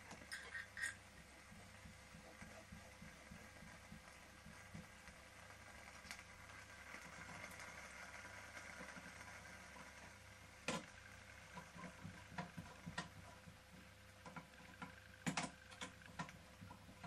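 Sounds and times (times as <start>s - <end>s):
faint steady hum: 0.0s - 17.0s
small metal parts clicking: 0.2s - 1.0s.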